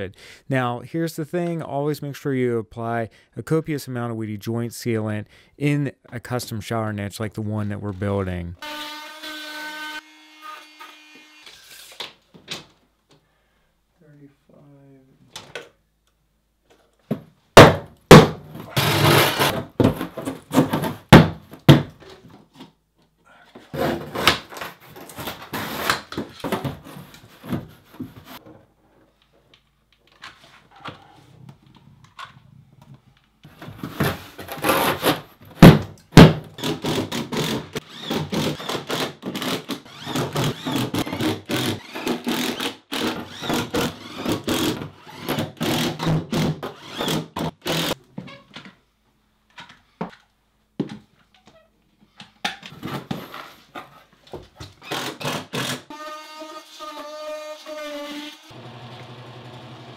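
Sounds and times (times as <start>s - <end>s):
foam panel knocks and thunks: 19.5s - 22.0s, 35.6s - 36.4s
impact driver driving screws: 36.6s - 48.0s.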